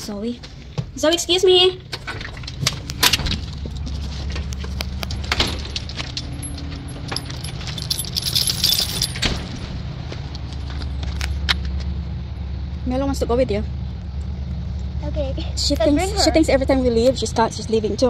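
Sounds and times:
small metal pieces jingling: 5.0 - 9.6.

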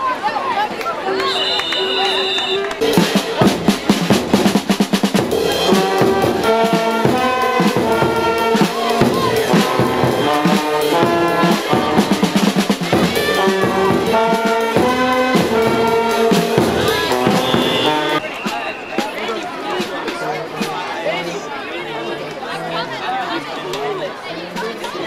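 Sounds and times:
brass instruments: 1.0 - 21.0
drum beat: 2.7 - 20.9.

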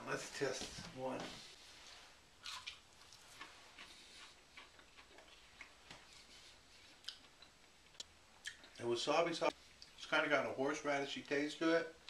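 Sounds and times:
person chewing crispy food: 2.4 - 8.8.

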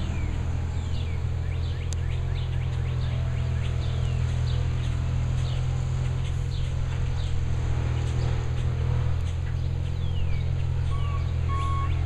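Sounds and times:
bird chirping: 0.0 - 12.0
low engine hum: 0.0 - 12.0.

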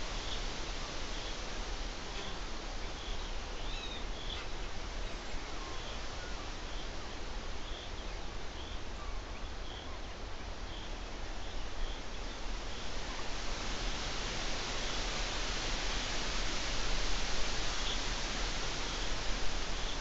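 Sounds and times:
background hiss: 0.0 - 20.0.

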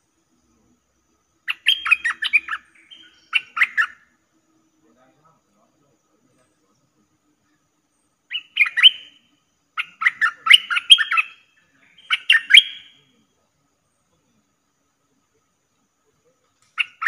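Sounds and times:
bulbul chirping: 1.3 - 4.2, 8.2 - 13.2, 16.6 - 17.0.

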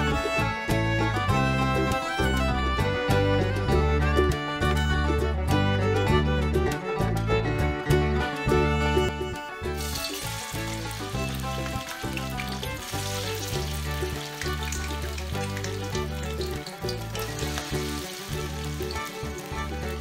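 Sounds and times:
background music: 0.0 - 20.0
meat sizzling in hot oil: 9.8 - 20.0.

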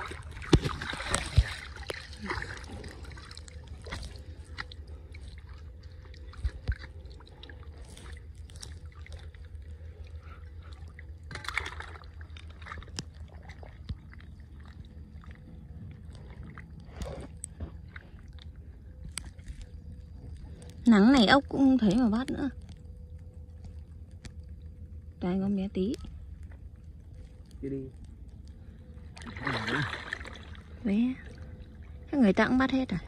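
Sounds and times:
water splash: 0.0 - 9.4, 10.8 - 15.4, 29.1 - 31.5
muddy water sloshing: 0.0 - 33.0.

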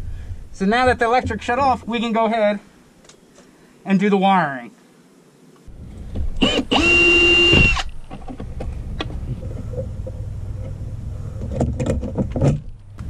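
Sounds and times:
cordless drill whine: 6.4 - 7.9.

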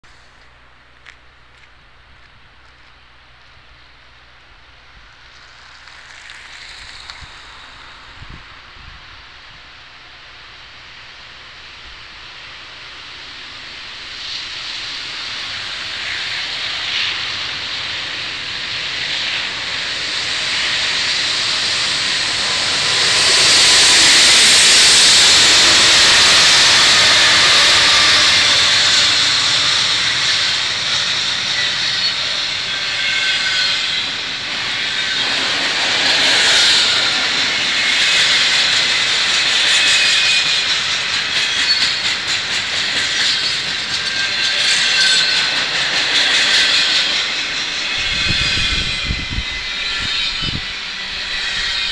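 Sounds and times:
diesel locomotives passing: 0.0 - 51.9
wheel-on-rail noise: 5.1 - 8.4.

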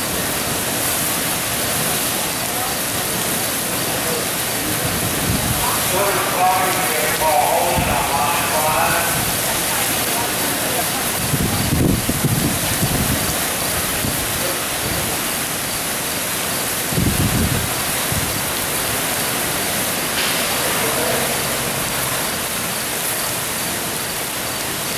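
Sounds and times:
heavy wind-driven rain: 0.0 - 24.9
strong storm wind: 4.6 - 15.7, 16.5 - 24.2.

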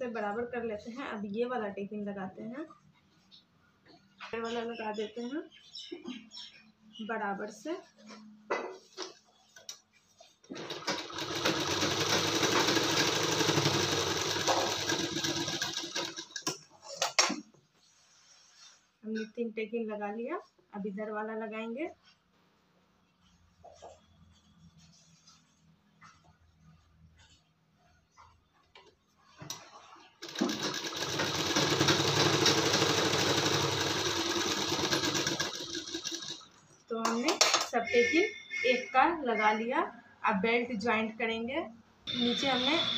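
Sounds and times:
sewing machine running: 10.5 - 16.5, 30.2 - 36.5.

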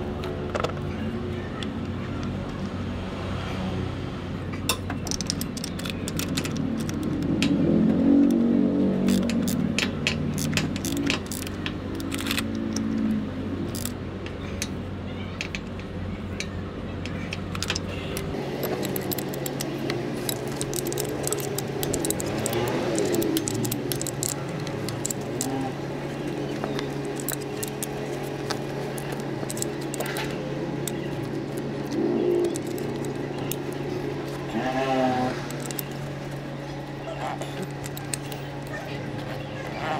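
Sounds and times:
steady low hum: 4.2 - 39.9
metal wrench clinking on bolts: 4.7 - 7.2, 9.0 - 13.0, 17.3 - 34.5.

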